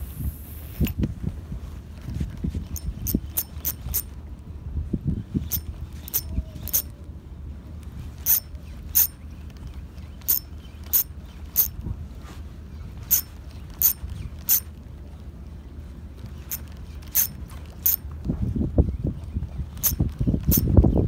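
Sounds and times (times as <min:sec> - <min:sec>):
wind rumble on microphone: 0:00.0 - 0:09.0, 0:11.2 - 0:15.1, 0:16.1 - 0:21.0
fishing reel clicking: 0:02.6 - 0:04.2, 0:05.4 - 0:06.9, 0:08.2 - 0:09.2, 0:10.2 - 0:11.8, 0:13.1 - 0:14.7, 0:16.4 - 0:18.0, 0:19.8 - 0:20.7.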